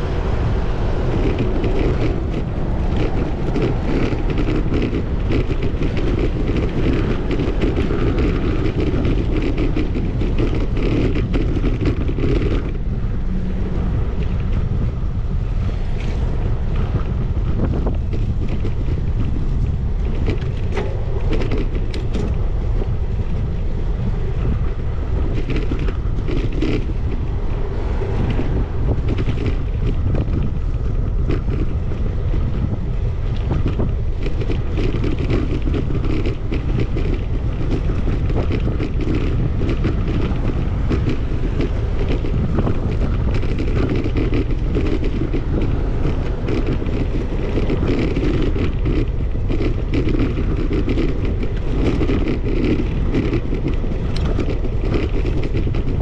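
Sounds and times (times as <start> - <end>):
wind rumbling on microphone: 0.0 - 56.0.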